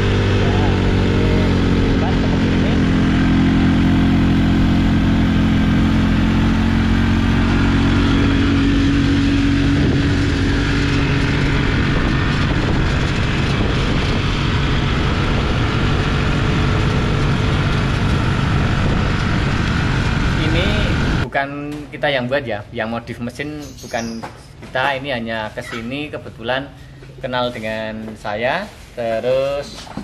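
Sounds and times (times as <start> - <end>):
motorcycle engine running: 0.0 - 21.3
wind and road noise: 0.0 - 21.4.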